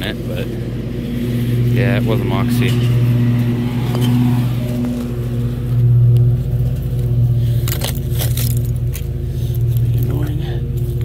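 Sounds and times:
engine drone: 0.0 - 11.0
digging in loose dirt: 2.7 - 11.0.

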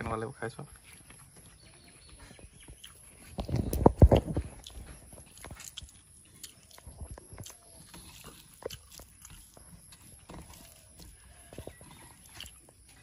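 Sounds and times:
chewing: 0.7 - 13.0
fingers mixing food on metal plate: 2.8 - 13.0.

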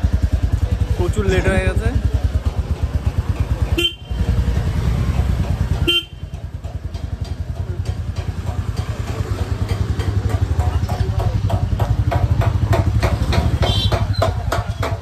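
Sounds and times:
motorcycle engine running: 0.0 - 15.0
horn toots: 3.7 - 4.4, 5.8 - 6.3, 13.6 - 14.2.

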